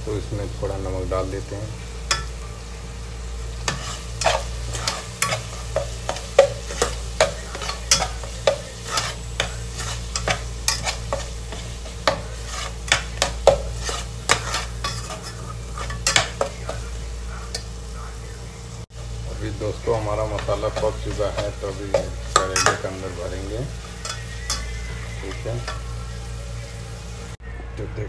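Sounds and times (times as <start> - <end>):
light sizzle: 0.0 - 27.4
spatula scraping metal pot: 3.6 - 16.5, 20.3 - 26.0.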